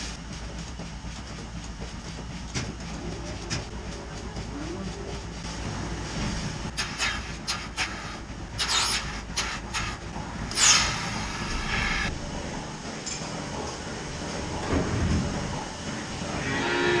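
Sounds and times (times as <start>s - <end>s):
vacuum system humming: 0.0s - 17.0s
air hissing: 10.5s - 12.1s.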